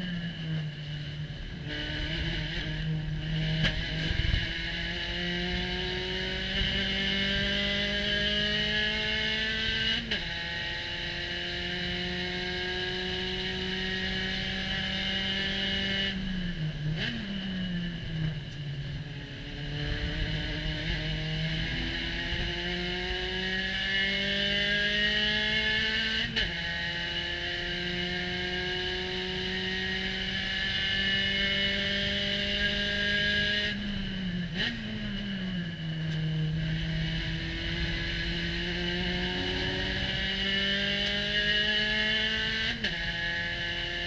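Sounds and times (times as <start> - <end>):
racing car engine: 0.0 - 44.0
wind rushing: 37.4 - 42.3.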